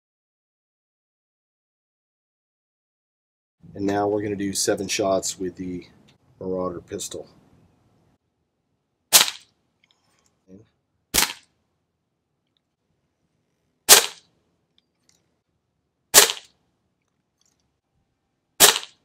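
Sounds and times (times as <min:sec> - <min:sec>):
air pistol shots: 0:09.1 - 0:09.5, 0:11.1 - 0:11.5, 0:13.9 - 0:14.3, 0:16.1 - 0:16.5, 0:18.6 - 0:19.0.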